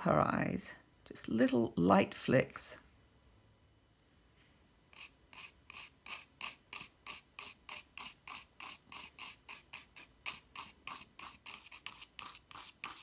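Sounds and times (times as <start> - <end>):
toothbrush scratching on paper: 4.9 - 13.0.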